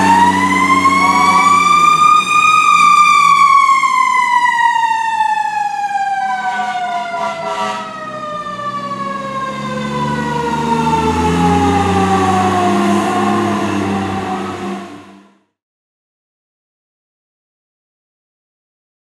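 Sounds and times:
diesel engine pulling away: 0:00.0 - 0:05.2, 0:06.3 - 0:15.5
mechanical siren winding down: 0:00.0 - 0:15.5.

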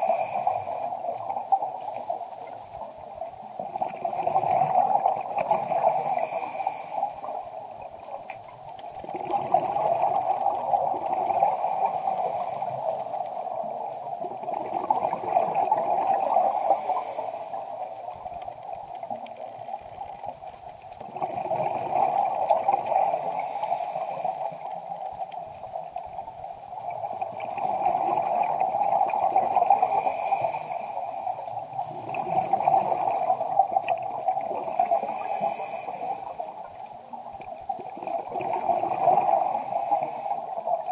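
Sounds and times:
scuba diver breathing underwater: 0:00.0 - 0:02.9, 0:03.6 - 0:07.6, 0:09.0 - 0:13.8, 0:14.4 - 0:18.3, 0:21.1 - 0:25.2, 0:27.6 - 0:36.8, 0:38.0 - 0:40.9
gurgling exhaled bubbles: 0:03.2 - 0:40.9.

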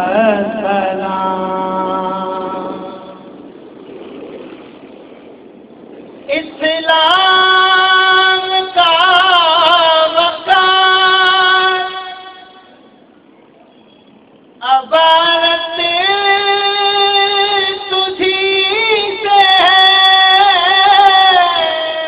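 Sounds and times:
man singing through microphone: 0:00.0 - 0:03.3, 0:06.3 - 0:12.7, 0:14.6 - 0:22.0.

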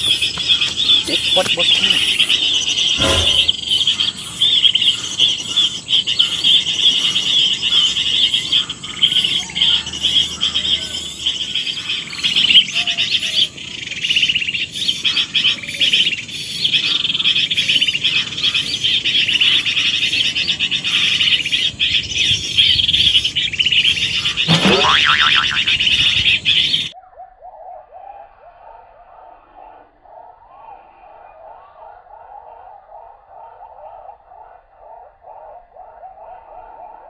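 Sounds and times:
insect drone: 0:00.0 - 0:26.8
birds chirping: 0:00.0 - 0:27.8.

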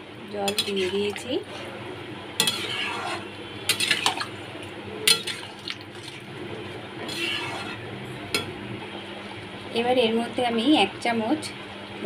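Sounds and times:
spatula scraping a metal pan: 0:02.4 - 0:04.1, 0:07.0 - 0:07.9
gravy sloshing: 0:02.5 - 0:04.4, 0:05.2 - 0:07.8.

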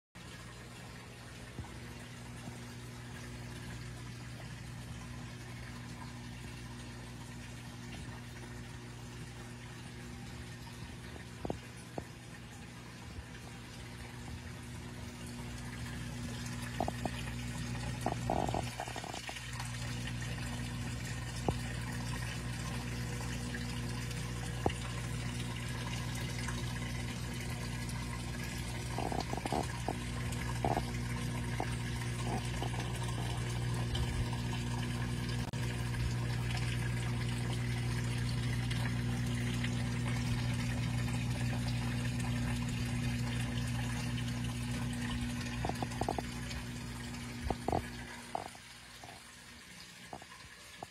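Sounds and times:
steady low hum: 0:00.2 - 0:50.9
water trickling and splashing: 0:00.2 - 0:50.9.

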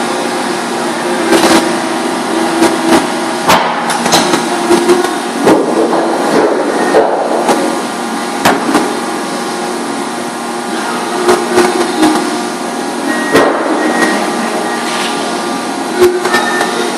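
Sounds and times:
paper-trimming machine humming: 0:00.0 - 0:16.9.

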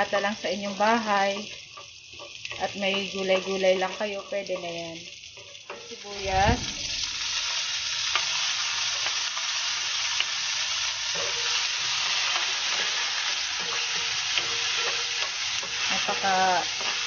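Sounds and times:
onion and garlic sizzling in oil: 0:00.0 - 0:17.0
spatula tapping and scraping pan: 0:01.2 - 0:06.0, 0:12.3 - 0:17.0.

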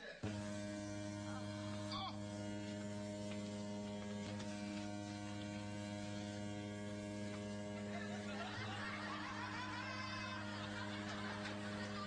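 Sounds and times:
electrical mains hum: 0:00.0 - 0:12.0
faint laughter: 0:07.9 - 0:12.0.

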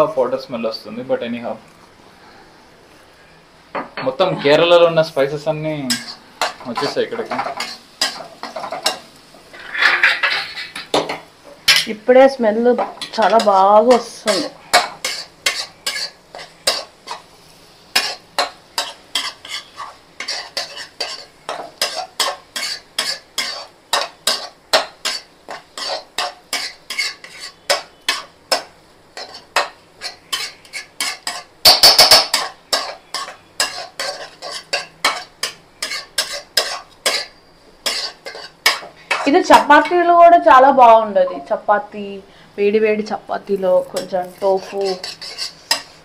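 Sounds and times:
metal spatula scraping a pan: 0:05.8 - 0:11.0, 0:12.8 - 0:17.3, 0:17.9 - 0:40.0, 0:43.8 - 0:46.0.

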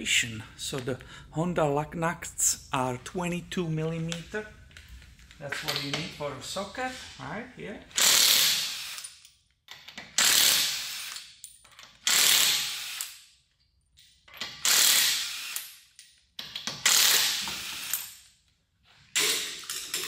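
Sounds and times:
impact wrench zipping lug nuts: 0:07.9 - 0:13.3, 0:14.3 - 0:18.3.

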